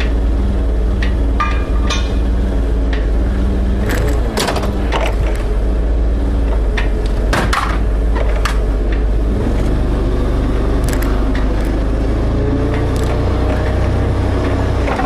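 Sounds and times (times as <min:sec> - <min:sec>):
forklift engine running: 0:00.0 - 0:15.0
sharp knocks and clanks: 0:00.9 - 0:03.2, 0:03.8 - 0:05.6, 0:06.4 - 0:09.1.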